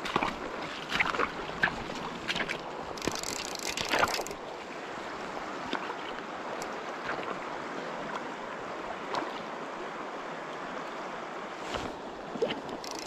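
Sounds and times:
river current flowing over riffles: 0.0 - 13.0
faint clicks: 12.6 - 13.0.

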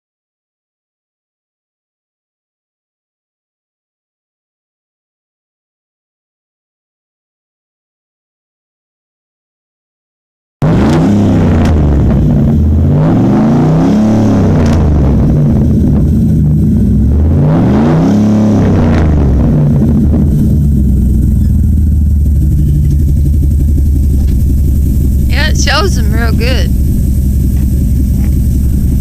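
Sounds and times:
vee eight engine revving and idling: 10.6 - 29.0.

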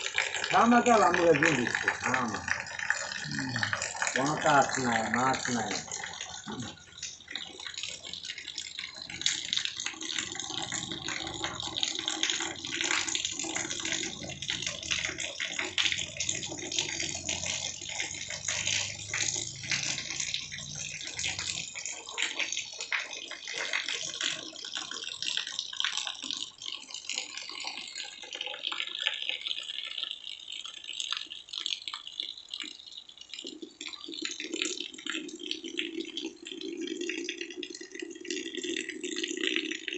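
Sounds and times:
steady rain: 0.0 - 24.7
water running off roof: 0.0 - 39.9.

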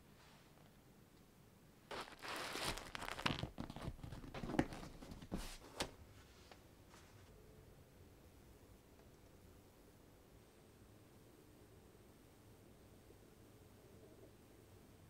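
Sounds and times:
hands rustling leather case: 1.9 - 5.6.

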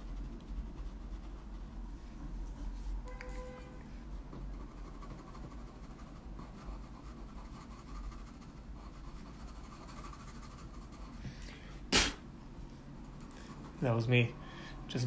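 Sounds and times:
pencil scratching on paper: 0.0 - 1.7, 4.4 - 11.2.

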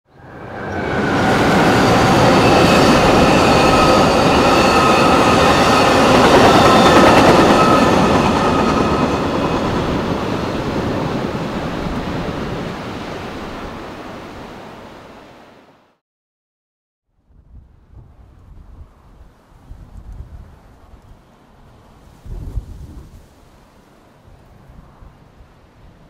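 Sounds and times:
train wheels rumbling on rail: 0.3 - 12.8
high-pitched ringing tones: 0.4 - 9.4.

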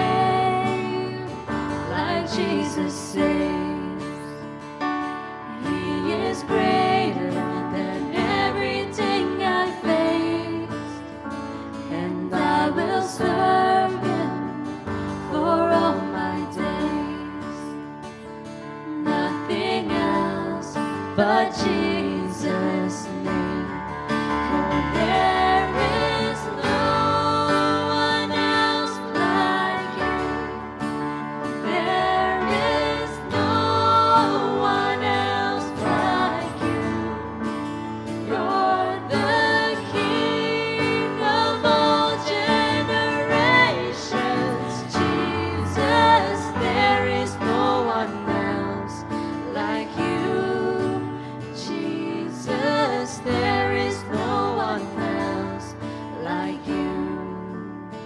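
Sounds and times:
acoustic guitar: 0.0 - 58.0
digital piano: 0.0 - 58.0
voices singing: 5.5 - 10.9, 19.0 - 30.8, 31.5 - 37.6, 38.2 - 57.5.

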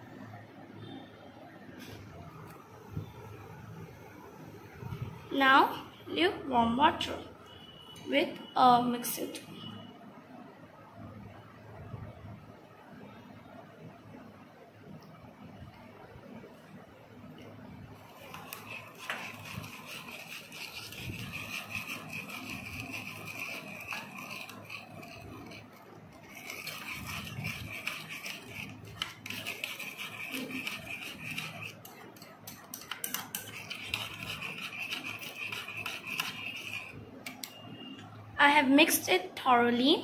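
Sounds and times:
metal spoon scraping a bowl: 18.0 - 37.6.

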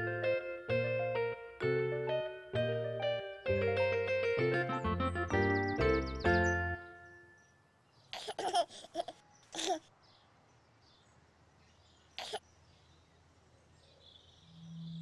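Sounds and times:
baby giggling and cooing: 8.2 - 9.8, 12.2 - 12.4.

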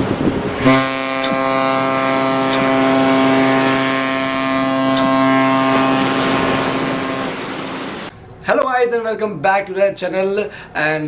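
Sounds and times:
wind on microphone: 0.0 - 1.7
ship's droning tone: 0.2 - 8.1.

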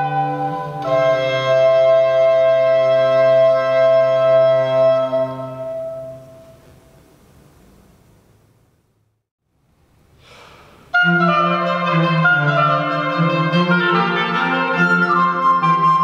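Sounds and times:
cello: 0.0 - 6.4, 10.9 - 16.0
oboe: 0.0 - 6.7, 10.9 - 16.0
breath-like hiss: 10.1 - 10.9.

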